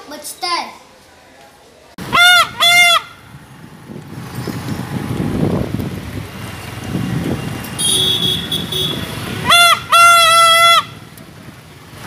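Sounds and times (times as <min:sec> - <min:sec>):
air horn honking: 0:07.7 - 0:11.0.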